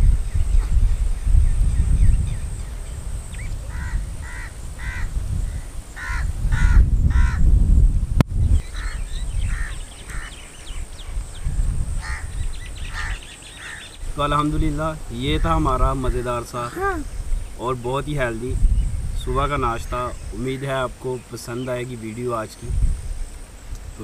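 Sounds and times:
crows cawing: 0:03.7 - 0:07.5, 0:08.7 - 0:10.4, 0:12.0 - 0:14.0.

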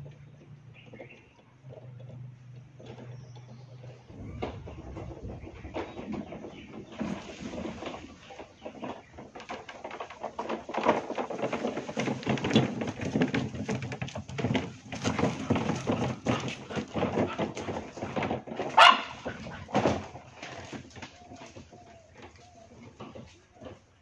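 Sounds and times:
irregular clatter: 0:00.0 - 0:24.0
dogs barking and whining: 0:15.9 - 0:20.2
dog yelping: 0:18.8 - 0:19.4.

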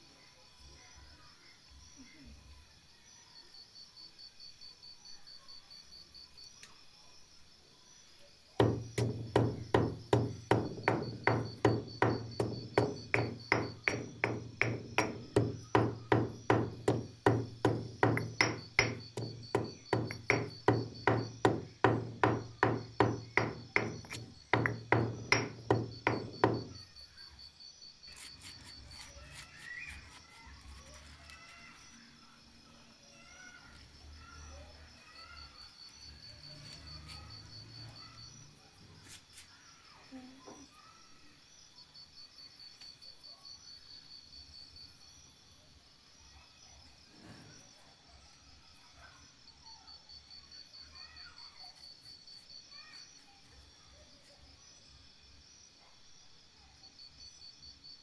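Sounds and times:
faint chirping: 0:00.0 - 0:58.0
stone pestle pounding in mortar: 0:08.6 - 0:26.8.

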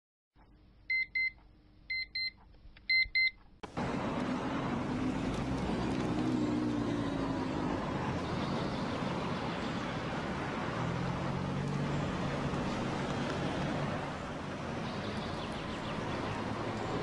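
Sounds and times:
road traffic noise: 0:03.6 - 0:17.0
vehicle engines passing: 0:03.6 - 0:17.0.

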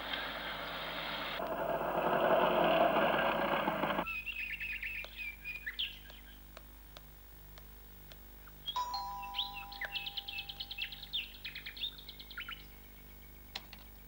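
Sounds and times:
small birds chirping: 0:00.0 - 0:01.4, 0:04.0 - 0:14.0
steady rushing noise: 0:00.4 - 0:04.0.

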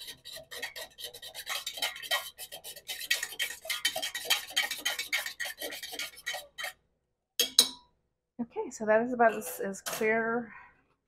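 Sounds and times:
utensil scraping a metal saucepan: 0:00.0 - 0:06.8, 0:09.2 - 0:10.3.

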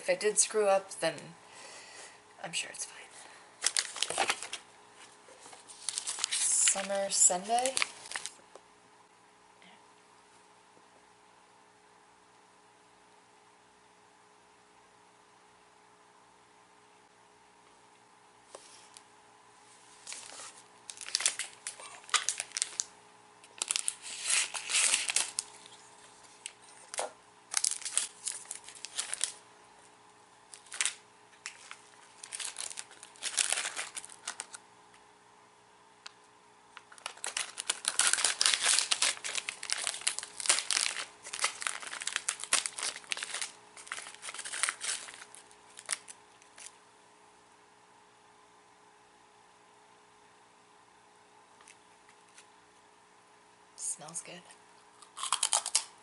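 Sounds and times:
plastic wrapper crinkling and tearing: 0:03.6 - 0:04.7, 0:05.4 - 0:08.4, 0:20.0 - 0:29.4, 0:30.5 - 0:34.6, 0:36.8 - 0:46.8, 0:55.2 - 0:55.9.

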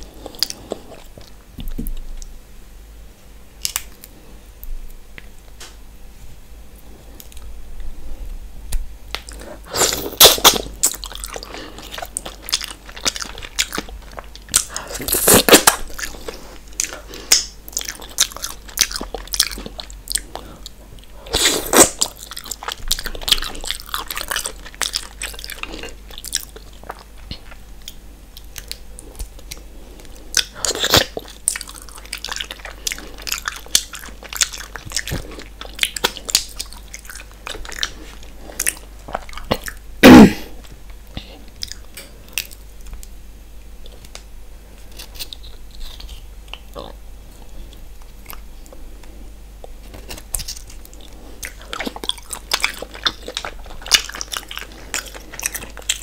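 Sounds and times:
wet chewing and lip smacks: 0:21.8 - 0:39.8, 0:40.9 - 0:43.1, 0:47.6 - 0:56.0.

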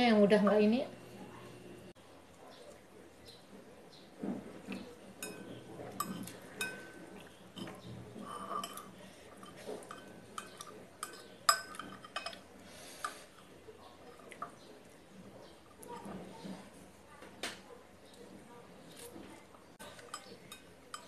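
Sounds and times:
chopsticks and spoon clinking on bowl: 0:04.6 - 0:16.8, 0:19.8 - 0:21.0.

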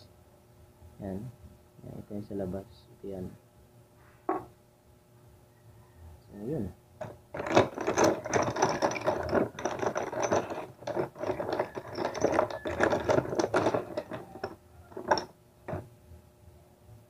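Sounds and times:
small metal parts clattering: 0:07.0 - 0:15.9.

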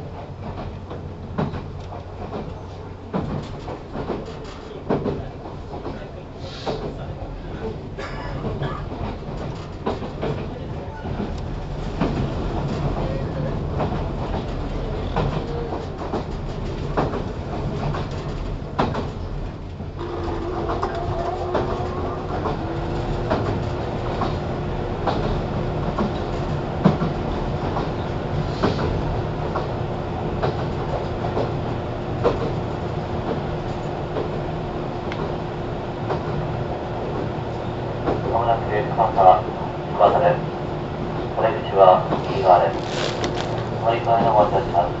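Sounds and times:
train running noise: 0:00.0 - 0:45.0.

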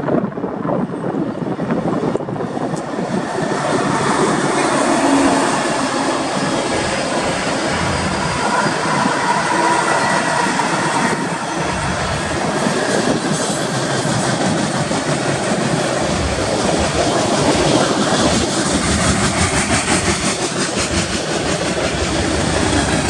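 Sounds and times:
diesel locomotive engines running: 0:00.0 - 0:23.0
wheels rumbling on rails: 0:00.0 - 0:23.0.

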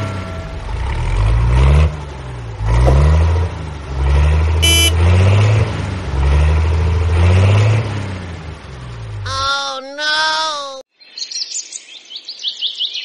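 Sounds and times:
vehicle engine revving: 0:00.0 - 0:09.3
short high toot: 0:04.6 - 0:05.0.

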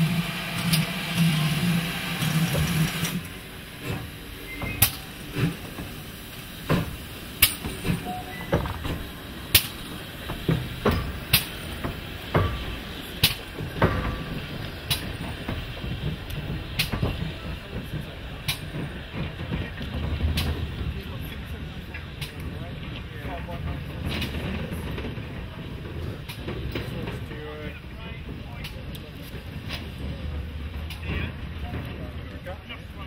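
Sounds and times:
loud hiss of steam: 0:00.0 - 0:22.4
steam locomotive rumbling: 0:00.0 - 0:33.0.

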